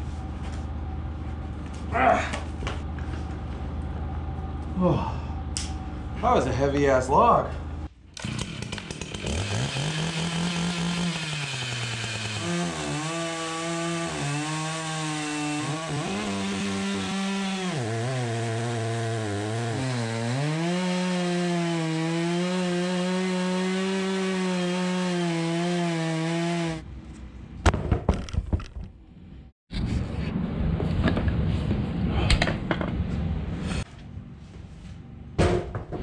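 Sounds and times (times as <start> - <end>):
chainsaw cutting log: 8.2 - 26.8.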